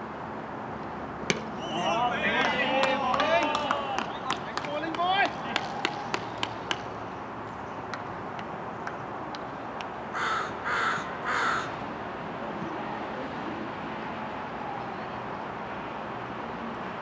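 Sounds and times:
crow cawing: 10.1 - 11.8.

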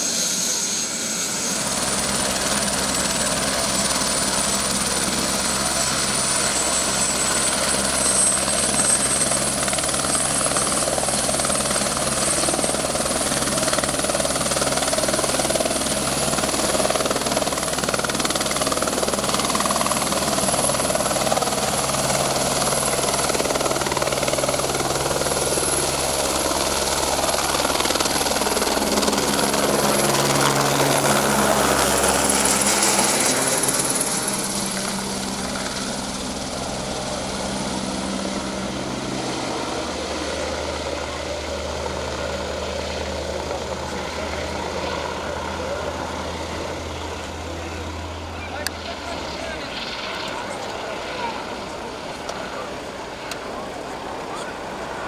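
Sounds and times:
helicopter rotor and engine: 0.0 - 55.0
high engine whine: 43.3 - 55.0.

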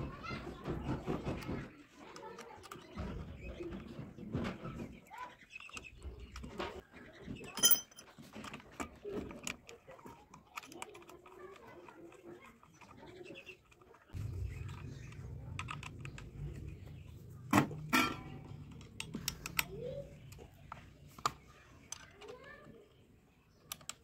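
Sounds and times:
small metallic clicks and knocks: 7.4 - 14.8, 17.5 - 22.8, 23.6 - 24.0.

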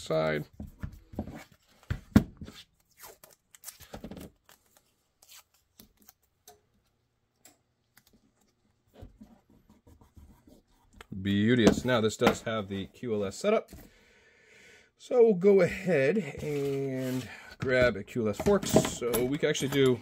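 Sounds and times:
tape rustling and clicks: 0.8 - 8.9.

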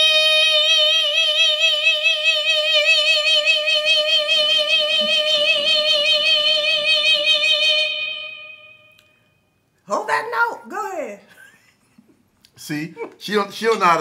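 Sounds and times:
man singing high held note: 0.0 - 8.9.

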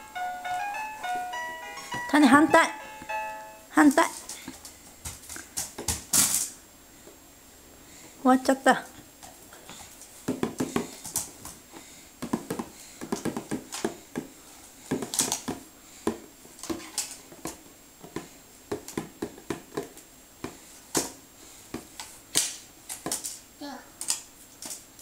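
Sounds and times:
plastic board knocking: 10.2 - 10.9, 12.2 - 14.3, 18.0 - 20.0.

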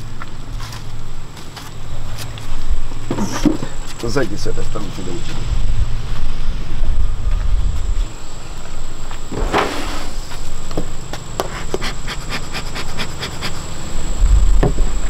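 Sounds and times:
wind rumble on microphone: 5.2 - 8.4, 14.0 - 15.0
bee smoker puff: 9.3 - 10.5, 11.4 - 15.0.

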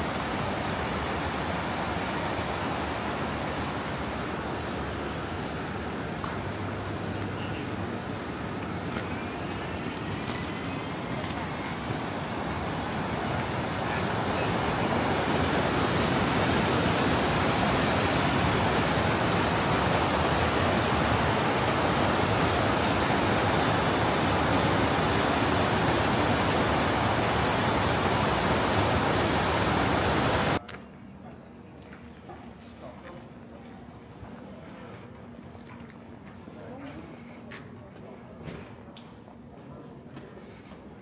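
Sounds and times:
fast-flowing water rushing: 0.0 - 30.6.

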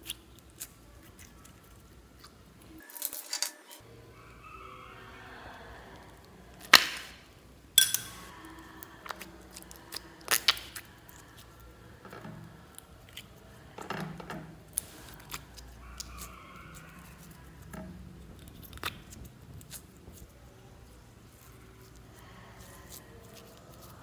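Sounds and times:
slime squelching: 7.8 - 24.0
sticky clicks of slime: 9.0 - 10.9.

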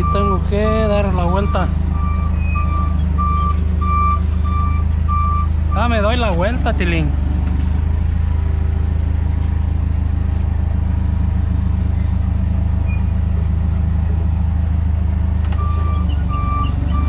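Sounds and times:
forklift engine droning: 0.0 - 17.0.

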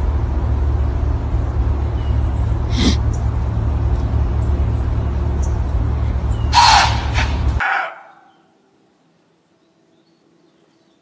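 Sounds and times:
steady low rumble: 0.0 - 7.6
deer snorting: 2.6 - 3.1.

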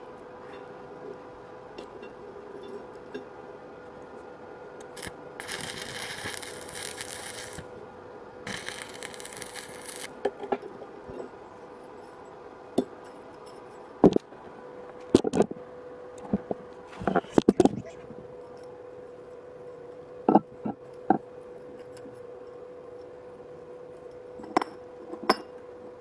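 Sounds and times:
arc welding crackling hiss: 4.9 - 7.7, 8.4 - 10.2.

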